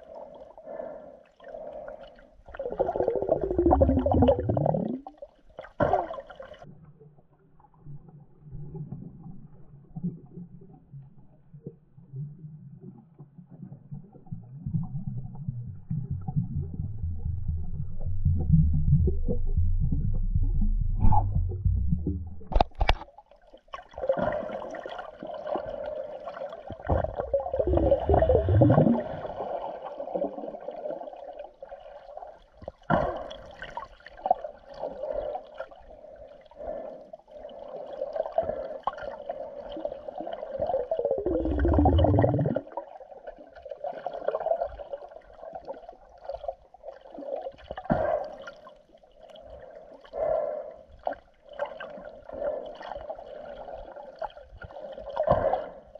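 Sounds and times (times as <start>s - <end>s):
water gurgling underwater: 2.5s - 36.8s, 38.0s - 50.3s
low water swirls: 23.6s - 32.4s.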